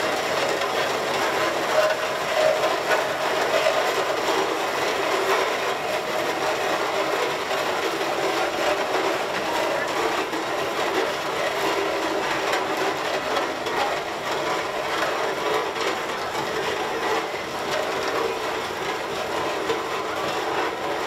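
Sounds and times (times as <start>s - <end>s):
steam engine gearing clatter: 0.0s - 21.0s.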